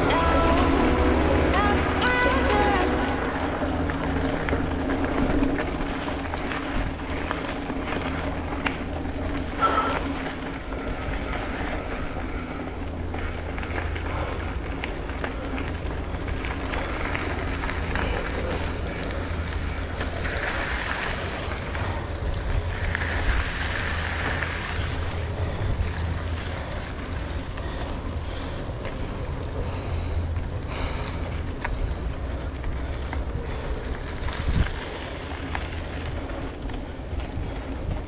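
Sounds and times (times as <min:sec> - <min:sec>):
steady low rumble: 0:00.0 - 0:38.0
wind rushing over microphone: 0:32.8 - 0:38.0.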